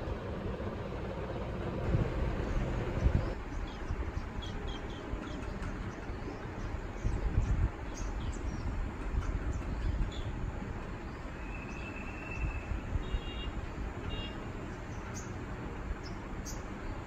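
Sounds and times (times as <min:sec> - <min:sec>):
low steady rumble: 0:00.0 - 0:11.8
birds chirping: 0:02.3 - 0:17.0.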